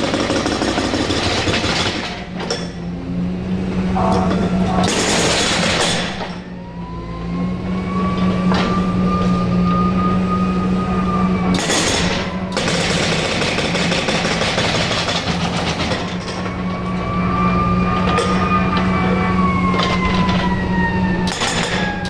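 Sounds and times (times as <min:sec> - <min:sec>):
hydraulic breaker hammering concrete: 0:00.0 - 0:02.6, 0:11.6 - 0:16.4
diesel engine running: 0:00.0 - 0:22.0
hydraulic whine: 0:01.9 - 0:12.6.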